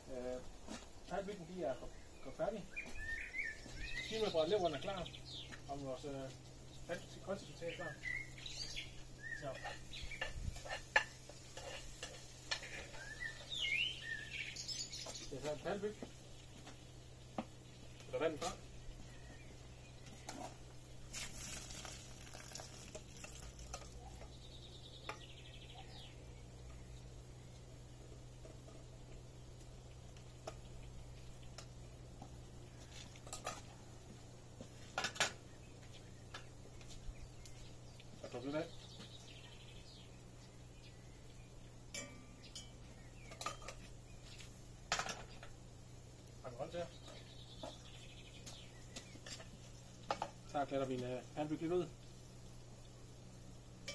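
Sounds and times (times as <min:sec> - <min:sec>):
bird trilling: 0:02.7 - 0:05.4
metal spoon clinking on saucepan: 0:41.9 - 0:43.8.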